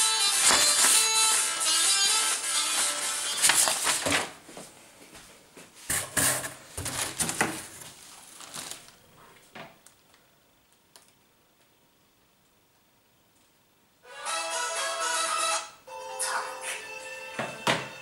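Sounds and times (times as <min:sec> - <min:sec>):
paper and cardboard rustling: 0:00.3 - 0:01.2, 0:03.3 - 0:04.4, 0:05.9 - 0:09.0.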